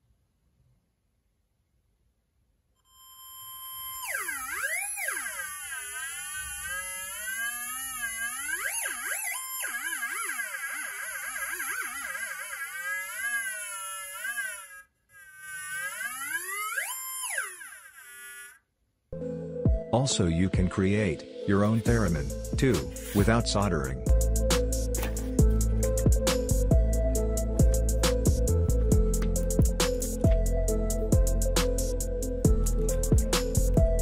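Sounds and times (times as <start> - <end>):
theremin electronic tone: 2.8 - 12.2.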